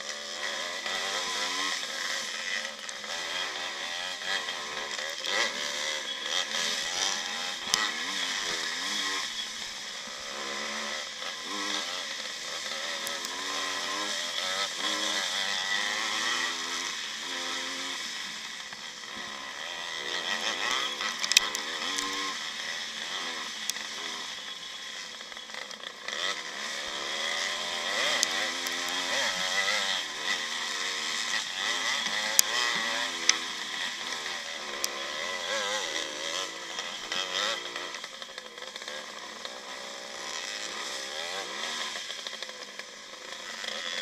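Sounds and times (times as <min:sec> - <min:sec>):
motocross bike engine revving: 0:00.0 - 0:44.0.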